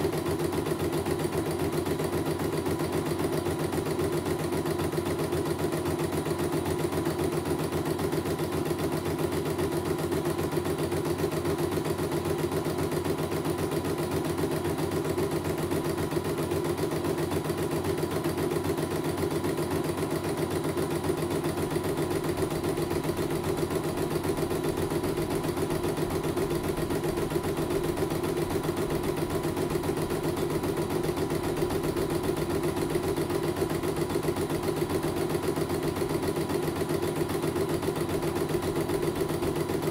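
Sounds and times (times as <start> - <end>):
embroidery machine stitching: 0.0 - 39.9.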